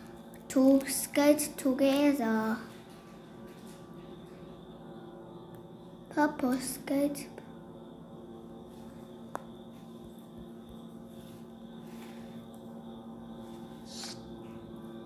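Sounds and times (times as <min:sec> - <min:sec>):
steady low hum: 0:00.0 - 0:15.0
short soft hiss: 0:13.9 - 0:14.2.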